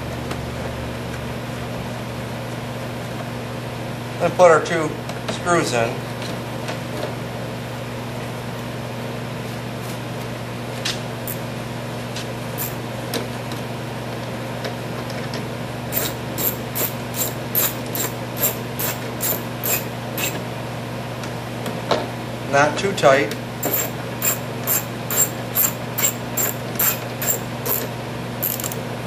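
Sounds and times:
steady low hum: 9.0s - 29.0s
screwdriver clicking: 16.0s - 20.4s, 23.6s - 28.8s.

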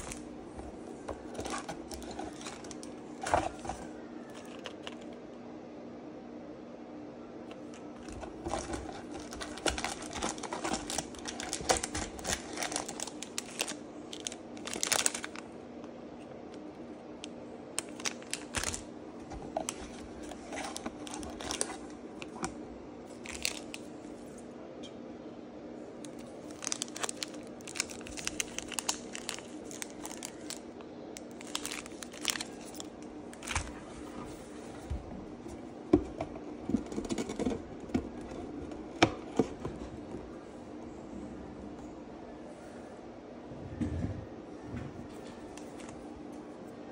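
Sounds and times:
packaging crinkling and clicking: 0.0s - 5.2s, 7.5s - 23.9s, 26.0s - 33.8s, 35.5s - 39.8s
faint steady hum: 0.0s - 46.9s.

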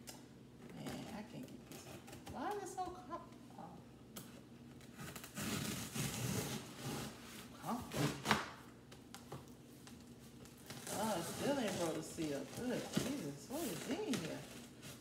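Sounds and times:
cardboard and tape rustling: 0.6s - 15.0s
knife sawing cardboard: 5.3s - 7.3s.

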